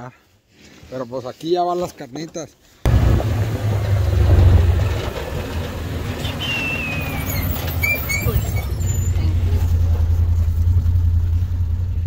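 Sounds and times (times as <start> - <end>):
vehicle engine rumble: 2.9 - 12.0
thin falling whistle: 6.2 - 9.1.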